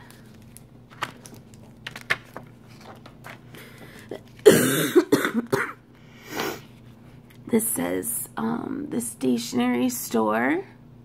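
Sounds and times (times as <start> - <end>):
paper sticker sheets rustling: 0.0 - 4.4
person coughing: 4.1 - 5.8.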